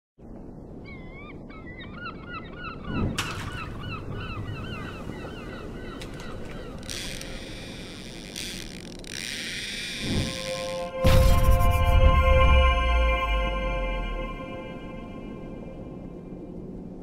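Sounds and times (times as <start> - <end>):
gulls calling: 0.9 - 11.2
low rushing noise: 10.0 - 17.0
loud thud: 11.0 - 12.4.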